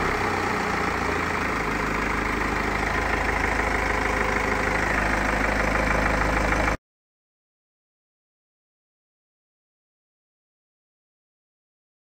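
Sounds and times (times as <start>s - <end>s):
car engine idling: 0.0s - 6.8s.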